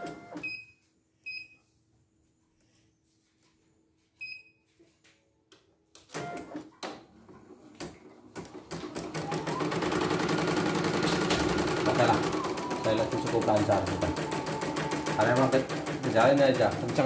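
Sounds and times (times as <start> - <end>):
embroidery machine stitching: 8.3 - 17.0.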